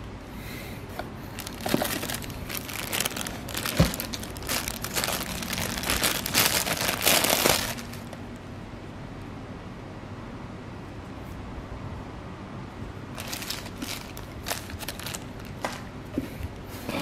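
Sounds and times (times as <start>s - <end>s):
plastic wrapping crinkling: 1.3s - 8.3s, 13.1s - 15.9s.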